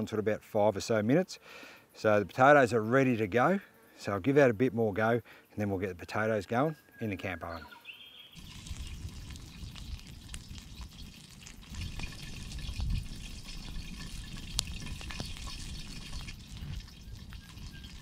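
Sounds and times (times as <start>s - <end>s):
steady hiss: 8.3s - 18.0s
campfire crackling: 8.4s - 18.0s.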